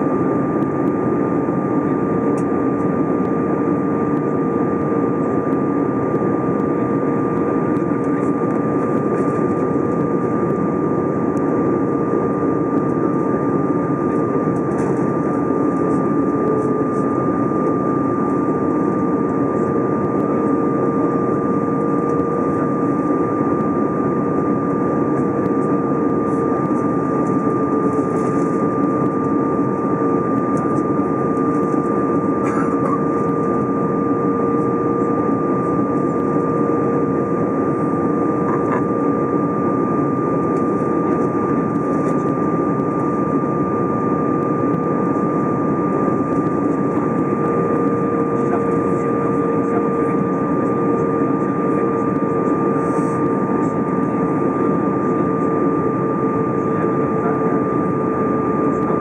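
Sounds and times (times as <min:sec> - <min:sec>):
airplane cabin engine roar: 0:00.0 - 0:59.0
steady whining tones: 0:00.0 - 0:59.0.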